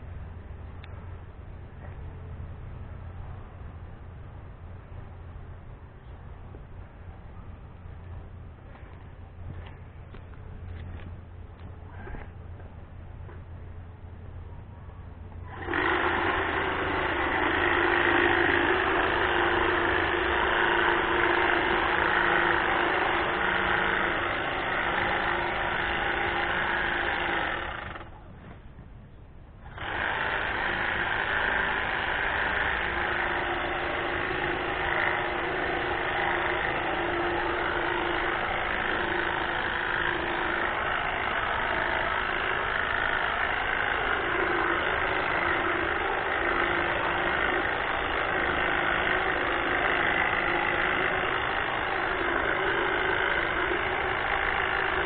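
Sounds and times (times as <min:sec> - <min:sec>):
hedge trimmer buzzing: 0:15.5 - 0:28.1, 0:29.6 - 0:55.0.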